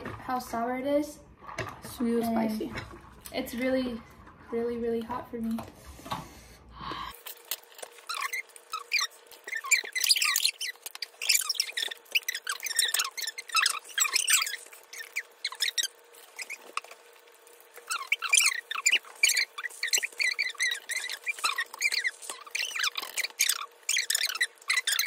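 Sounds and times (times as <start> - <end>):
sped-up squeaky voices chattering: 8.1 - 17.0, 17.8 - 25.0.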